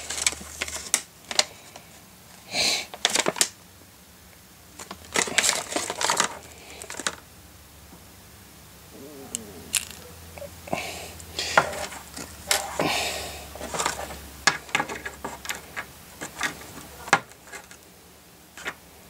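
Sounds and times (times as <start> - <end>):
packaging rustling: 0.0 - 1.9, 2.9 - 3.6, 4.8 - 7.2, 9.7 - 10.0, 13.6 - 17.8.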